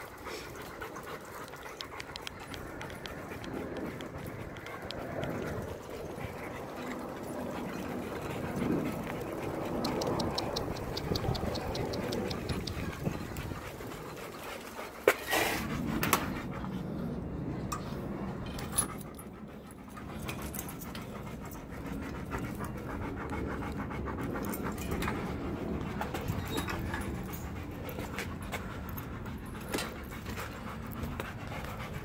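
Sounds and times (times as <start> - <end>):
dog panting: 0.0 - 32.0
sharp clicks: 9.7 - 13.1.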